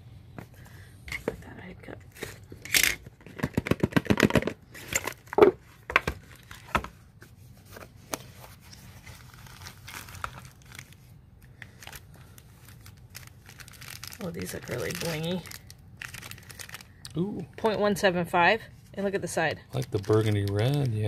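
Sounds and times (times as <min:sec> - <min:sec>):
paperboard box rustling and crinkling: 0:03.2 - 0:11.1.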